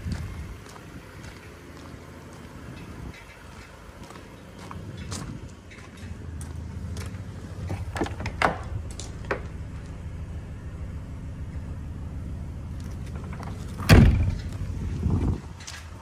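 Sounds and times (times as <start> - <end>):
low rumble: 4.8 - 16.0
door thump: 13.8 - 14.4.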